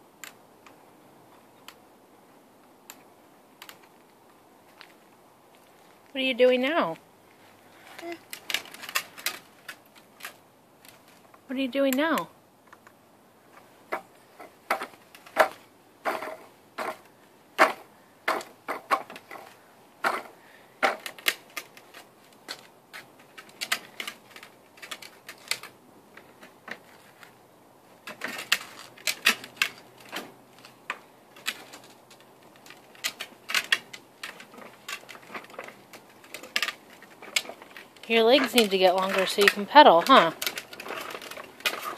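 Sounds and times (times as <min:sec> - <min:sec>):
plastic tricycle clicking on concrete: 0:03.6 - 0:04.1, 0:07.9 - 0:13.0, 0:13.6 - 0:27.4, 0:28.0 - 0:41.9.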